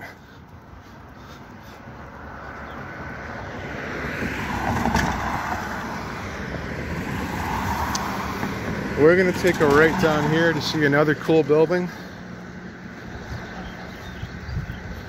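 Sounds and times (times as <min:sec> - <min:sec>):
car driving past: 0:02.2 - 0:10.9.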